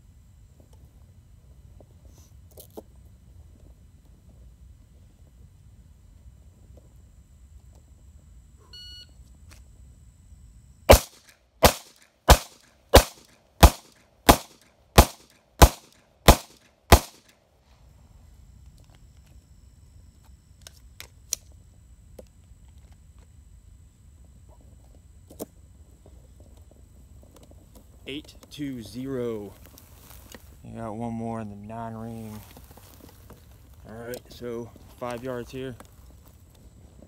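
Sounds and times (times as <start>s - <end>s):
short electronic beep: 8.7s - 9.2s
handgun shots: 10.9s - 17.3s.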